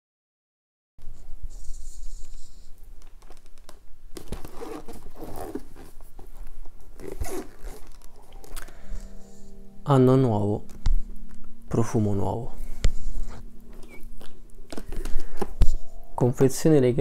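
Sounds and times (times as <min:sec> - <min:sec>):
cardboard box rustling and scraping: 0:04.2 - 0:08.2.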